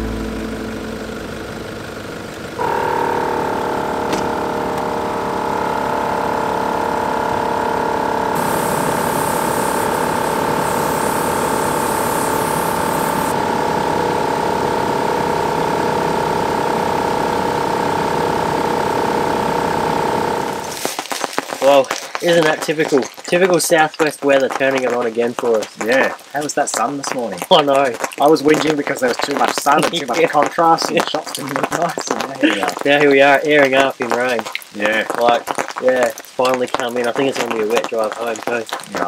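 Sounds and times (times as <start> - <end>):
air compressor whine: 0.0 - 21.0
high hiss: 8.3 - 13.4, 20.6 - 39.0.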